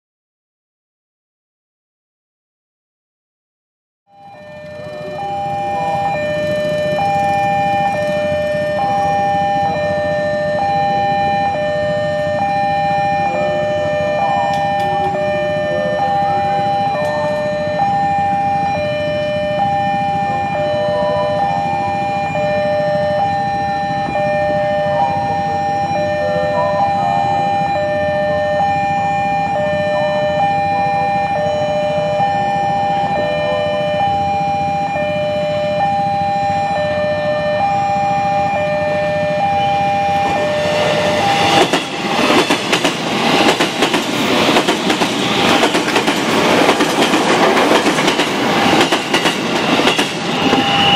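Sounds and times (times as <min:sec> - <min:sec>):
train passing: 0:04.1 - 0:50.9
level crossing bell chiming: 0:13.5 - 0:18.0
train wheels clattering: 0:40.3 - 0:50.9.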